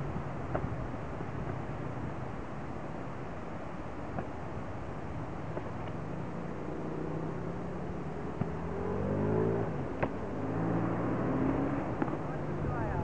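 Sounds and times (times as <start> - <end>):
engine revving: 6.6 - 12.6.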